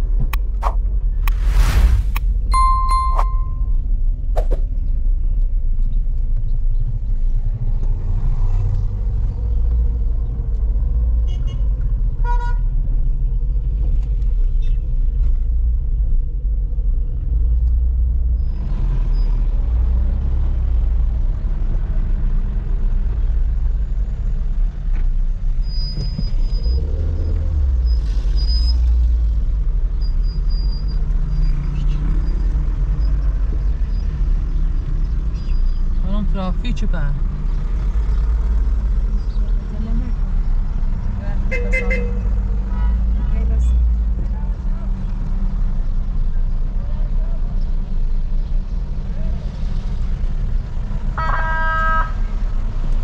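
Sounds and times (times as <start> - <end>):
vehicle engine and road noise: 0.0 - 53.0
short horn beep: 2.6 - 3.7.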